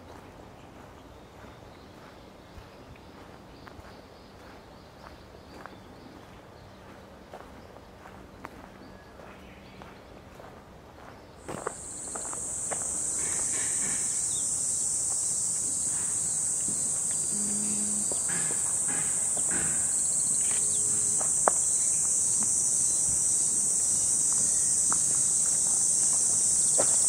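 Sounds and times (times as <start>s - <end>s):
insects buzzing drone: 11.4s - 27.0s.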